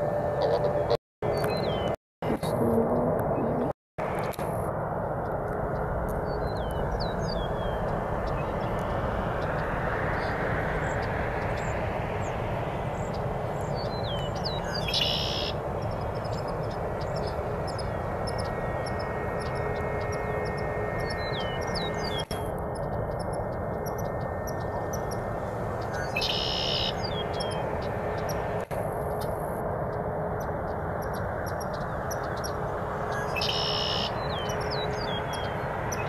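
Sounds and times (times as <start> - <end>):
distant jet engine rumble: 0.0 - 36.0
small birds chirping: 6.2 - 29.4, 30.3 - 36.0.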